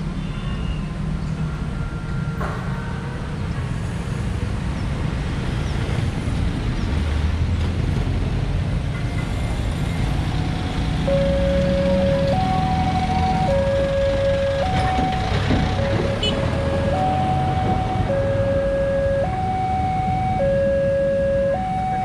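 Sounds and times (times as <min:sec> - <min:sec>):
traffic passing: 0:00.0 - 0:22.0
steady pitched tone: 0:11.1 - 0:22.0.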